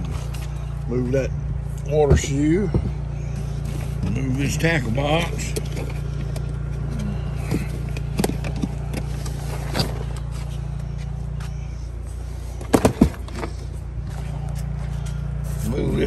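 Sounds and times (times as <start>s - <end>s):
steady low hum: 0.0s - 16.0s
items knocking and rattling: 5.1s - 10.5s, 12.5s - 15.0s.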